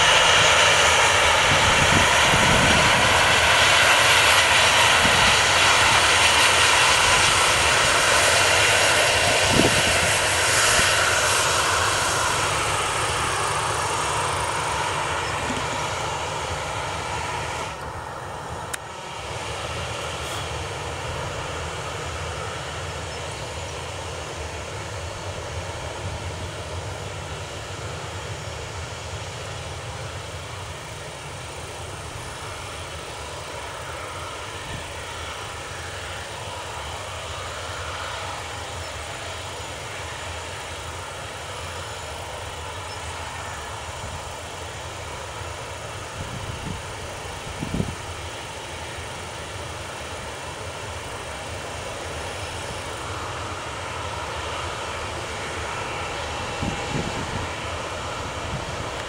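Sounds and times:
jet engines at taxi power: 0.0 - 59.0.

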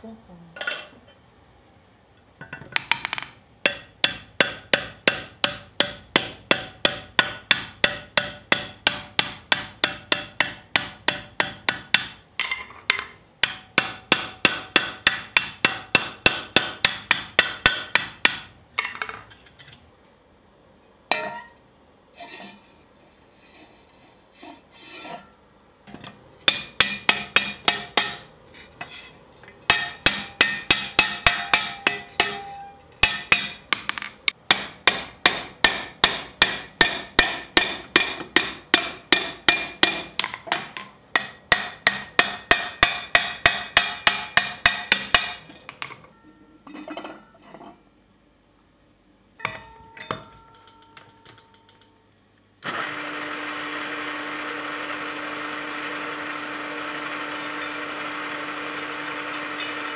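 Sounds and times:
hammer striking metal on anvil: 2.5 - 19.2, 21.1 - 21.6, 26.4 - 28.3, 29.5 - 47.3, 49.4 - 52.0
pan scraping on anvil: 22.2 - 25.4, 26.5 - 33.4.

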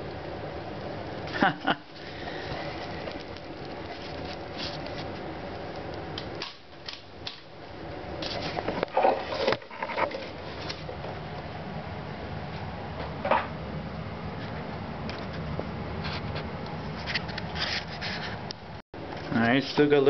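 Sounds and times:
shredder motor running with crackle: 0.0 - 11.5.

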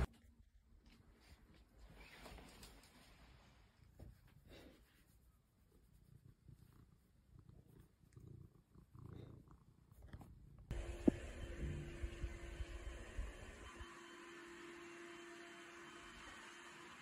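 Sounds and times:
cat purring: 5.6 - 12.8.

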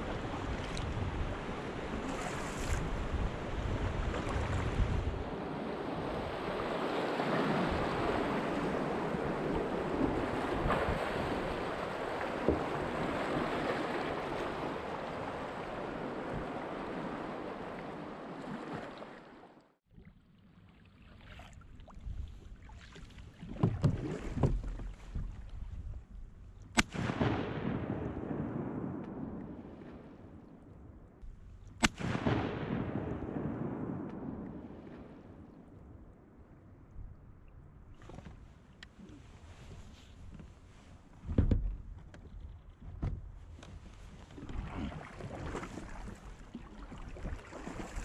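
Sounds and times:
wind buffeting microphone: 0.0 - 18.3
shotgun shot: 26.8 - 28.2, 31.8 - 33.4.

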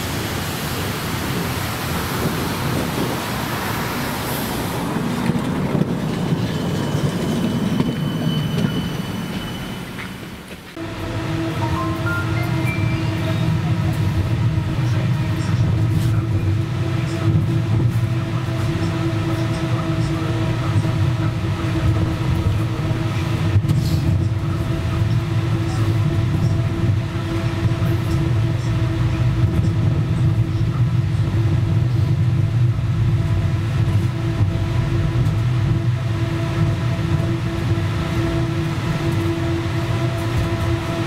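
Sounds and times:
tram wheels rumbling on rails: 0.0 - 41.0.

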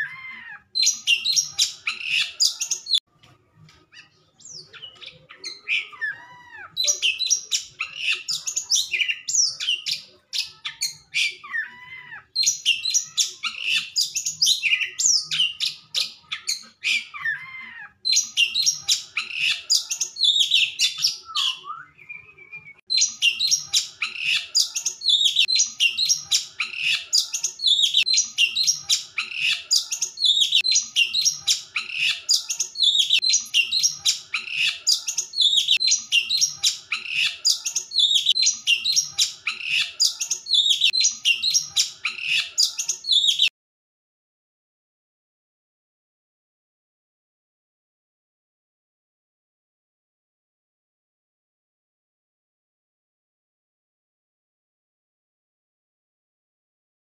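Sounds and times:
magpie-robin singing: 0.0 - 3.0, 3.7 - 43.5.

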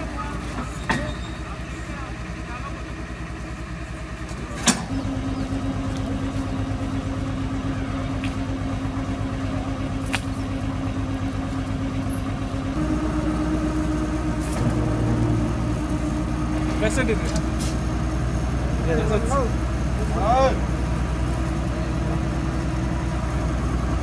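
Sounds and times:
drilling rig engine pulsing: 0.0 - 24.0
steady hum: 12.6 - 20.1.

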